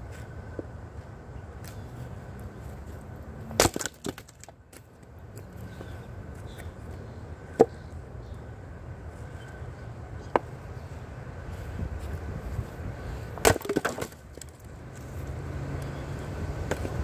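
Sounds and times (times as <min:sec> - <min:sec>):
axe splitting wood: 0:03.5 - 0:04.5, 0:13.4 - 0:14.6
wood pieces clattering: 0:03.6 - 0:04.6, 0:13.4 - 0:14.7.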